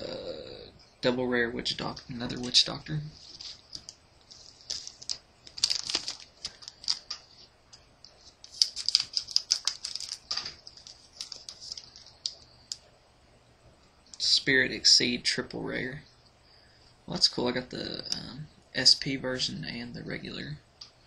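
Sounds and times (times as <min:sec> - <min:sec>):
foil wrapper rustling: 0:01.8 - 0:07.5, 0:08.2 - 0:12.8
trading cards clicking: 0:08.5 - 0:12.8.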